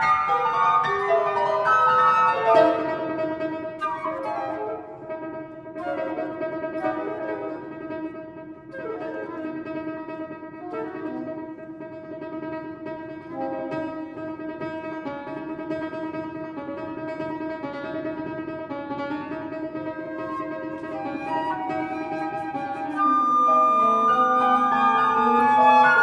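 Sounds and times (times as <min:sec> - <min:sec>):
flute: 0:00.0 - 0:03.1, 0:03.7 - 0:08.1, 0:08.7 - 0:11.6, 0:20.0 - 0:26.0
grand piano: 0:00.0 - 0:26.0
soprano saxophone: 0:20.2 - 0:26.0.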